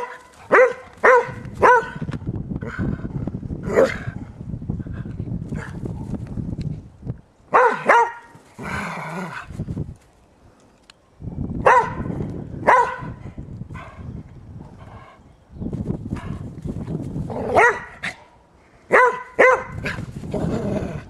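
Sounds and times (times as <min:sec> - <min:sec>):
dog barking: 0:00.0 - 0:02.0, 0:07.5 - 0:08.4, 0:11.6 - 0:13.2, 0:17.5 - 0:18.2, 0:18.9 - 0:20.0.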